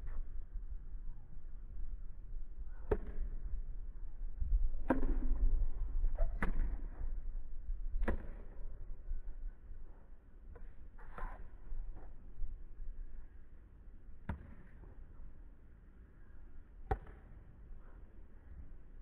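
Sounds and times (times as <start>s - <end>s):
steady low rumble: 0.0s - 13.6s.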